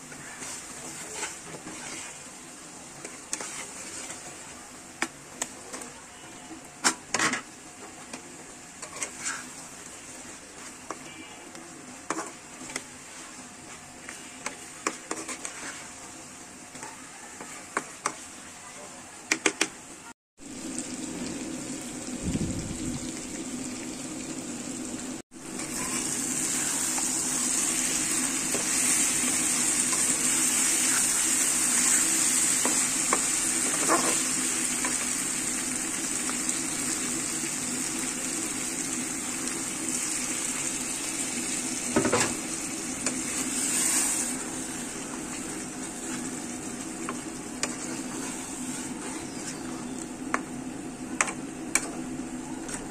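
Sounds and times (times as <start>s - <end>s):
curry sizzling: 0.0s - 18.6s, 20.4s - 52.9s
spatula scraping pan: 0.1s - 2.4s, 3.0s - 4.5s, 8.8s - 9.7s, 12.1s - 16.1s, 25.6s - 35.0s, 43.0s - 44.4s, 45.0s - 49.8s.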